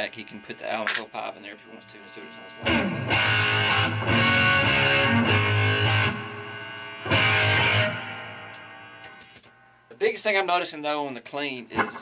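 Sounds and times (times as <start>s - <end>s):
electric guitar chords strummed: 2.1s - 9.2s.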